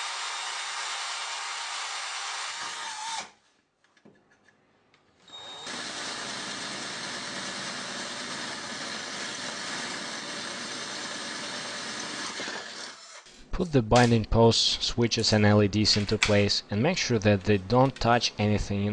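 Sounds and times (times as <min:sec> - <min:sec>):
cordless drill grinding through steel: 0:00.0 - 0:03.4, 0:05.2 - 0:13.3.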